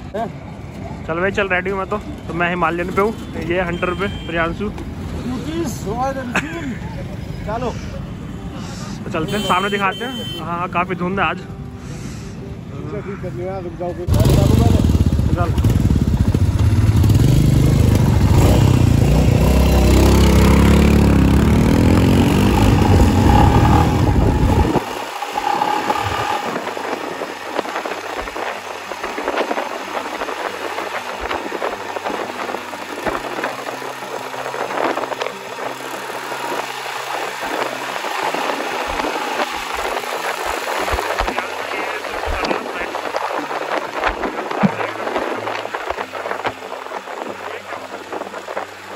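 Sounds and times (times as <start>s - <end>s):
motorcycle engine running: 14.1s - 41.3s
wind rushing over microphone: 14.1s - 48.9s.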